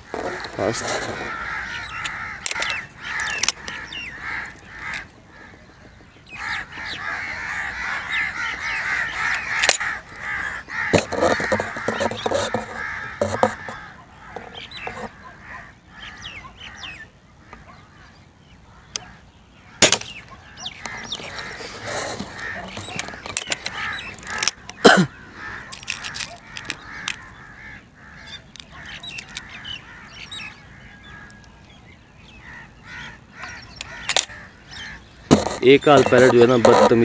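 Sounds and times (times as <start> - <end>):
birds calling: 0.0 - 37.0.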